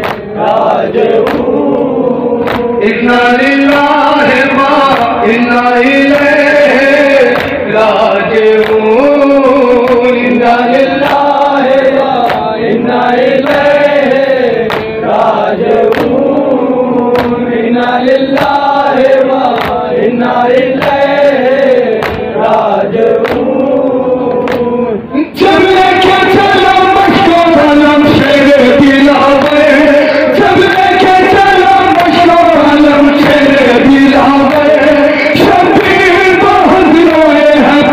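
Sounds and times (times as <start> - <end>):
chest-beating slaps: 0.0 - 0.3, 1.2 - 1.6, 2.5 - 2.7, 12.2 - 12.6, 14.6 - 15.0, 15.8 - 16.2, 17.2 - 17.4, 19.5 - 19.9, 20.8 - 21.1, 22.0 - 22.3, 23.2 - 23.5, 24.4 - 24.7
men chanting in unison: 0.0 - 37.9.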